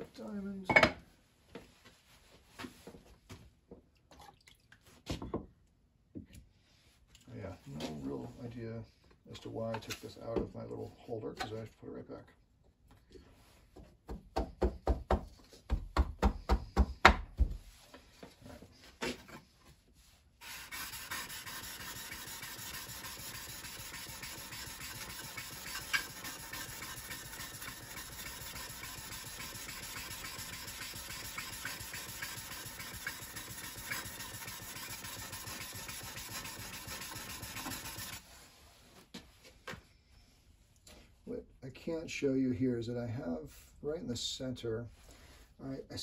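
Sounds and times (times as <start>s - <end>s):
scraper rubbing on sharpening stone: 20.4s - 38.2s.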